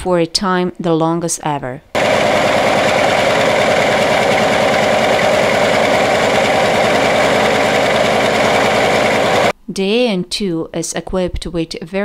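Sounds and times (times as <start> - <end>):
radial engine running: 2.0 - 9.5.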